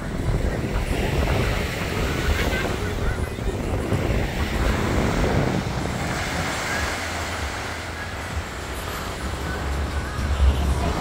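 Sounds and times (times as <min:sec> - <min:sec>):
wind buffeting microphone: 0:00.0 - 0:08.6
small waves washing on shore: 0:00.0 - 0:11.0.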